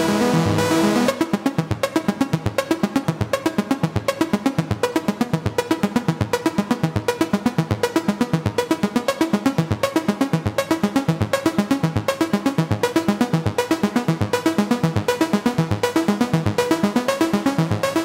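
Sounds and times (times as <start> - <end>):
electronic hip-hop beat: 0.0 - 3.5.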